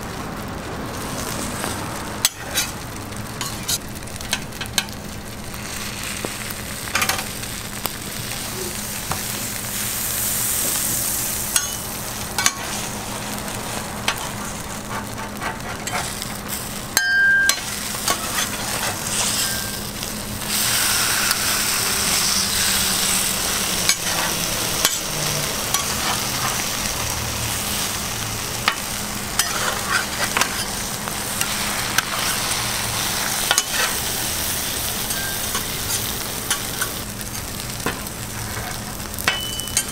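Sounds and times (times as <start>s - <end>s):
batter sizzling on a griddle: 0.0s - 39.9s
metal spatulas scraping and tapping: 14.1s - 16.2s, 29.4s - 30.8s, 33.5s - 33.9s.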